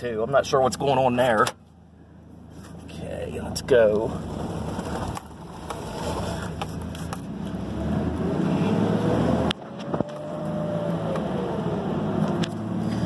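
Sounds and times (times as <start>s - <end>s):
pickup engine revving: 4.1s - 13.0s.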